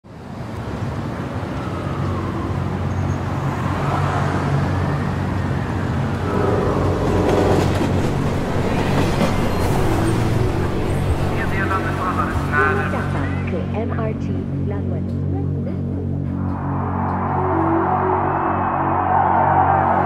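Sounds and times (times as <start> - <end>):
low rumble of city traffic: 0.0 - 20.0
trains rumbling: 0.8 - 20.0.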